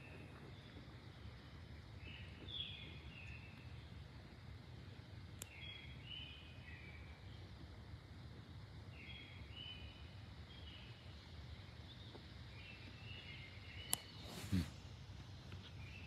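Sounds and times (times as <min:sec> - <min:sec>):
birds chirping faintly: 0:00.0 - 0:16.0
low steady rumble: 0:00.0 - 0:16.0.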